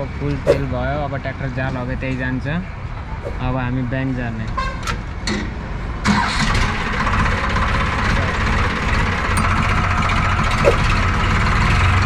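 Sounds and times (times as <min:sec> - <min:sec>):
tractor diesel engine running: 0:06.1 - 0:12.0.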